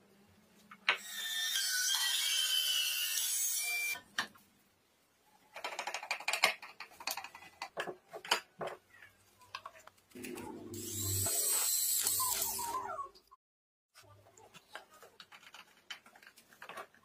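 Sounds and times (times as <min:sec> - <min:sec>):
wooden parts and screws clicking: 0:05.4 - 0:12.8, 0:14.4 - 0:17.0.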